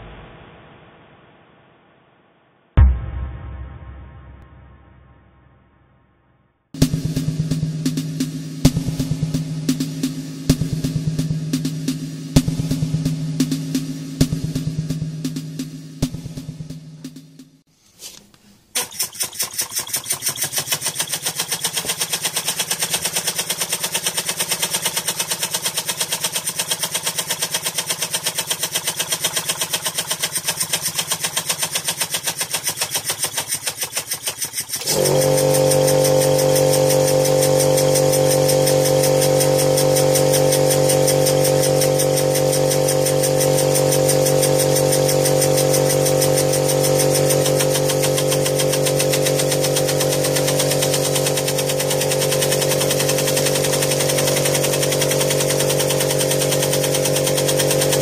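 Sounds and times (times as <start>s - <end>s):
model steam engine exhaust beating: 18.8s - 58.0s
air compressor motor hum: 34.8s - 58.0s.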